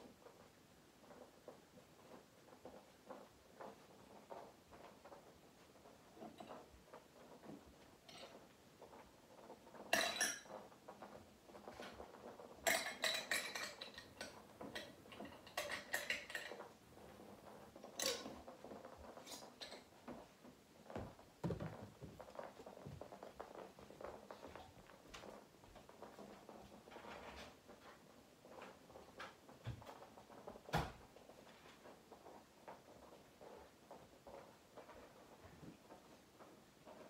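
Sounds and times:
kibble rattling in plastic ball: 0.0 - 37.0.

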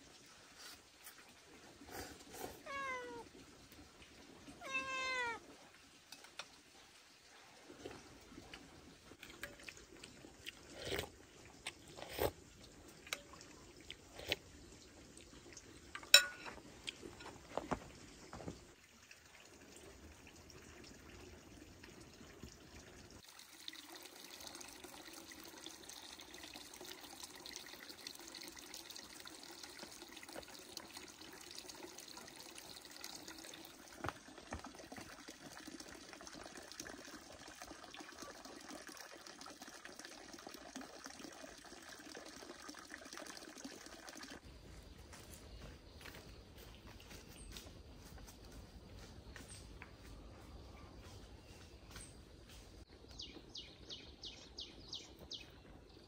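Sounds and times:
water running: 0.0 - 50.7
sharp knocks and clinks: 16.0 - 17.4.

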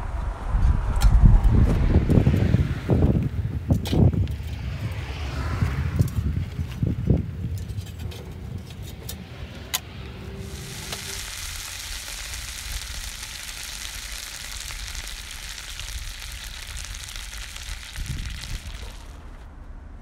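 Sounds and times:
melted plastic bubbling and sizzling: 10.4 - 19.5.

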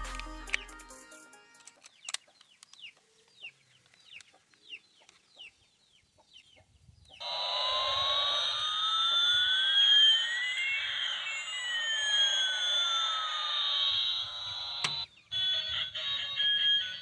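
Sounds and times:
toy airplane jet sound effect: 7.2 - 17.0.

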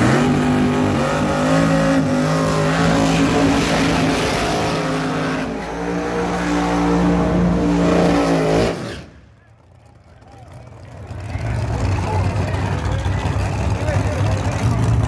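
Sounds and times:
car engine at high revs: 0.0 - 9.2.

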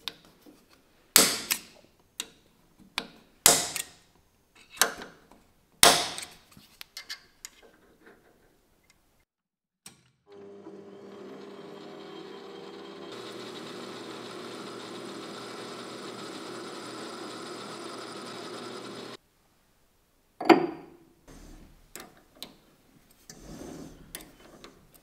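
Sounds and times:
metal lathe running: 10.3 - 19.2.

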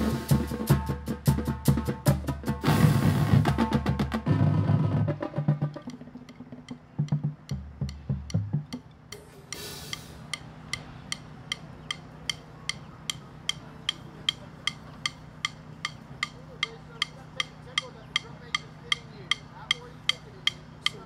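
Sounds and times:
metronome clicking: 5.6 - 21.0.

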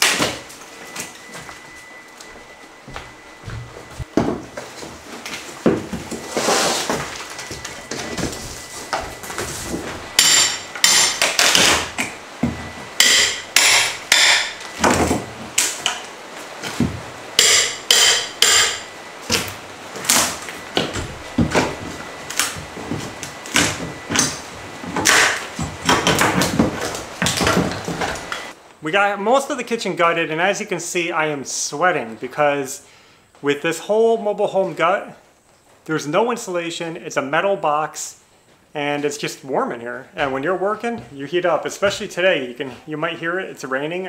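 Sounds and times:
hammer blows on metal: 13.0 - 14.6, 17.4 - 18.9.

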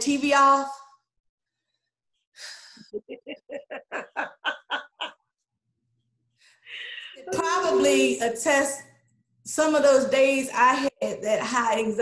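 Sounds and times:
woman laughing: 2.8 - 5.3.

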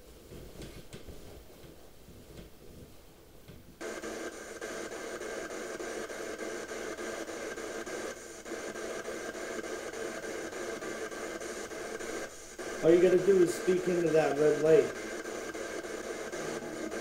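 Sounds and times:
spirit box static stutter: 3.8 - 17.0.

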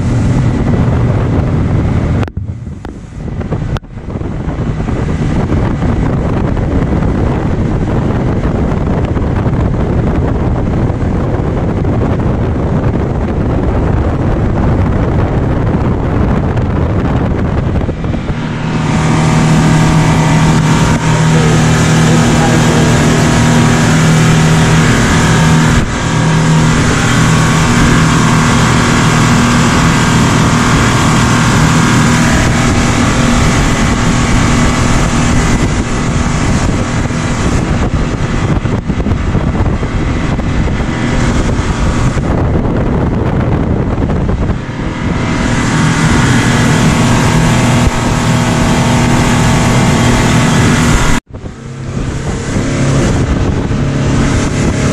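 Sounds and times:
speedboat engine drone: 0.0 - 54.9.

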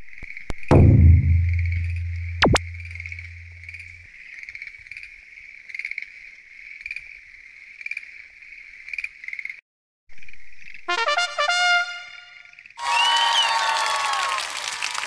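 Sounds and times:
low hum: 0.7 - 4.0
tree frogs trilling: 3.7 - 9.6.

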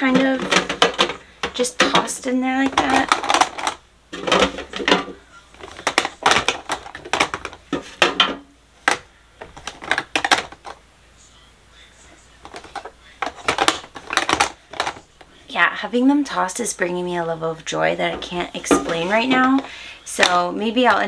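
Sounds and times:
plastic compacts clattering: 0.0 - 10.8, 12.4 - 15.1, 18.1 - 20.4.

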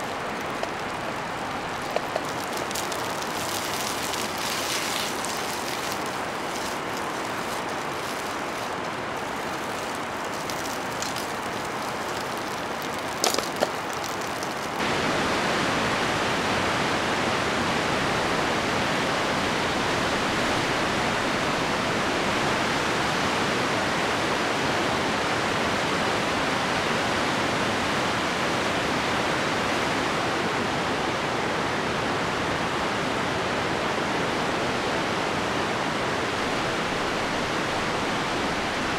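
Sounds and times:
crackles: 0.0 - 14.8
river rapids roaring: 0.0 - 24.4.

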